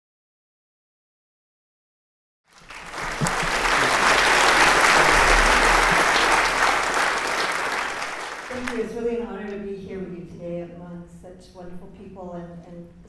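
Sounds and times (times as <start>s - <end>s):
audience applauding: 2.5s - 8.9s.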